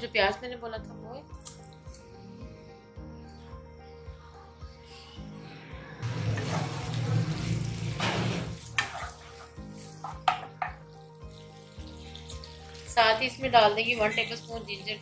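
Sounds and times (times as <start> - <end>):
onions sizzling in hot oil: 6.0 - 15.0
spatula knocking against pan: 10.0 - 10.8.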